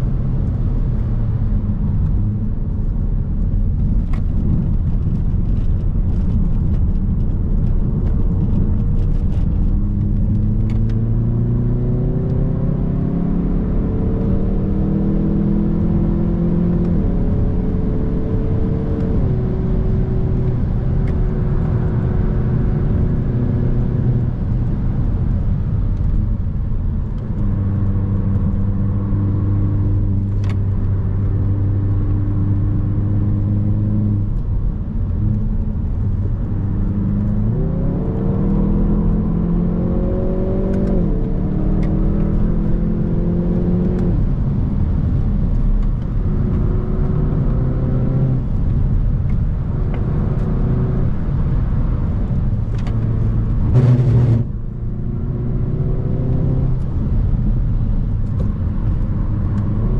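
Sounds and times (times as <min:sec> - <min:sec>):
car engine revving: 0:27.0 - 0:59.9.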